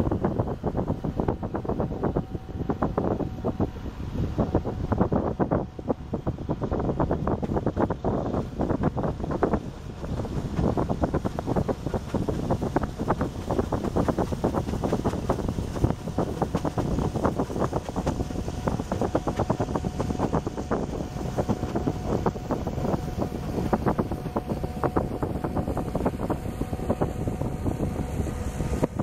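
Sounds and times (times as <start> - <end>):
boat engine running: 0.0 - 29.0
wind buffeting microphone: 0.0 - 29.0.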